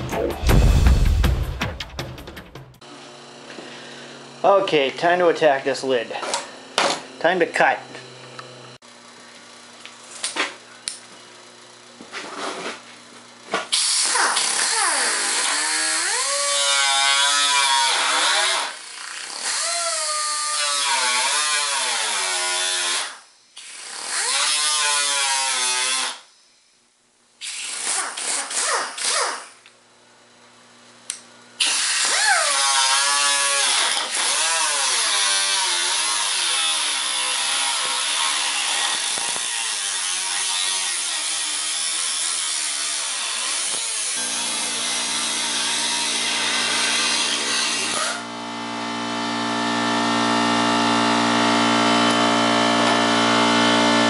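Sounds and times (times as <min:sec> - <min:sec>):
cut-off tool whine cutting metal: 0:13.7 - 0:26.3, 0:31.6 - 0:54.0.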